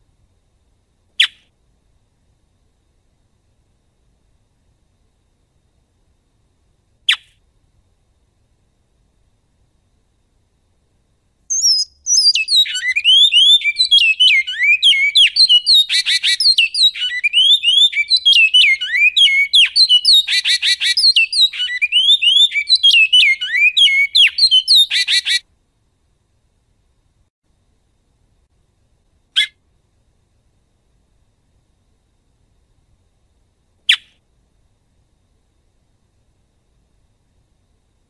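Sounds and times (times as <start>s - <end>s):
finch singing whistled notes: 11.5s - 25.4s
harsh buzzing bird notes: 11.5s - 25.4s.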